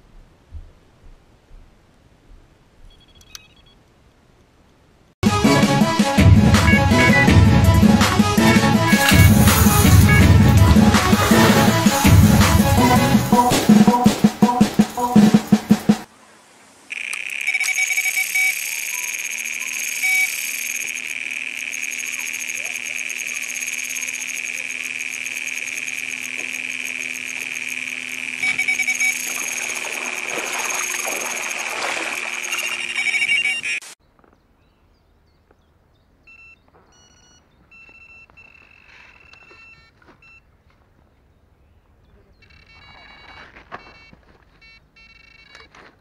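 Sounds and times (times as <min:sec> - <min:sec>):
faint short alarm beeps: 0:02.9 - 0:03.8, 0:36.3 - 0:40.5, 0:42.4 - 0:45.7
bite alarm continuous high tone: 0:05.2 - 0:16.1, 0:16.9 - 0:34.0.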